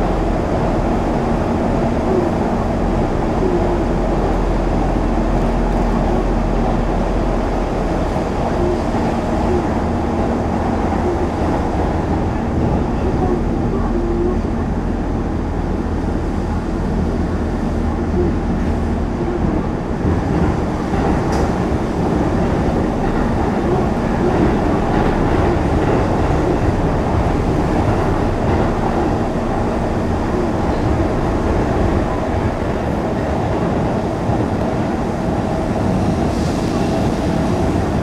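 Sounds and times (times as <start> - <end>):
train rumbling in tunnel: 0.0 - 38.0.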